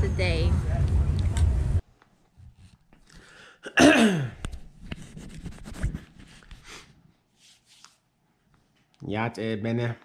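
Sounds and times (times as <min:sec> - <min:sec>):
fingers rubbing and tapping phone: 0:04.4 - 0:06.7.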